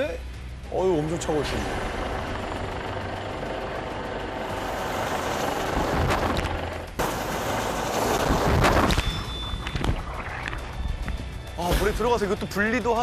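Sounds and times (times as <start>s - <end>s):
helicopter rotor and engine: 0.2s - 11.5s.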